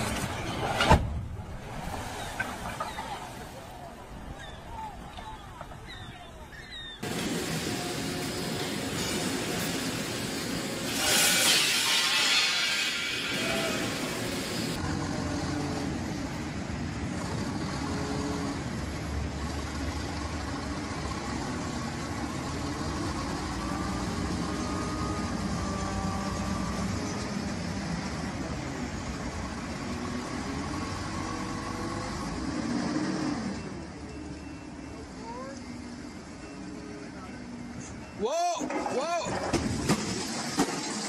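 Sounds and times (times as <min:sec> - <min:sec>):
forklift engine running: 0:14.2 - 0:38.2.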